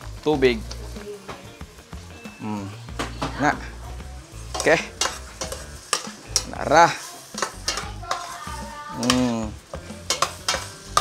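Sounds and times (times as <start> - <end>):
light sizzling: 0.0 - 11.0
metal spatula scraping a pot: 4.3 - 11.0.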